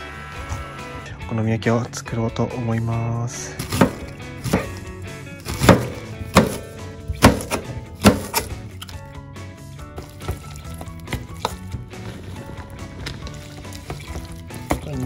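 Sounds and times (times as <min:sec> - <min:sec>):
knife chopping on plastic board: 0:03.6 - 0:08.6
stirring in a metal bowl: 0:09.8 - 0:15.0.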